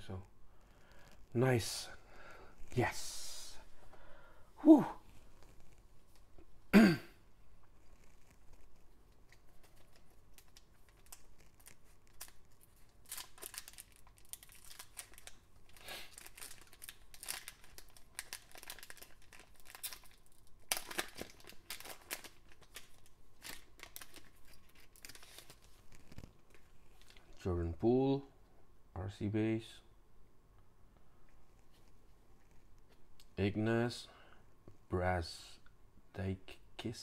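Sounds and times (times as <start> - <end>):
foil wrapper crinkling and tearing: 9.6 - 27.3.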